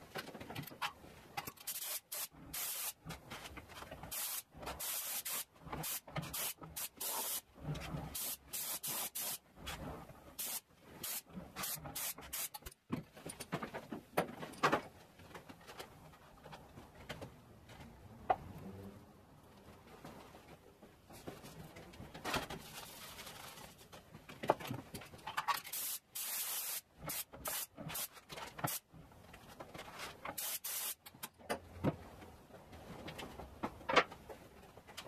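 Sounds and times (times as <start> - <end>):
spray gun hissing bursts: 1.7 - 3.0, 4.1 - 7.4, 8.1 - 9.4, 10.4 - 12.6, 25.7 - 28.1, 30.4 - 31.0.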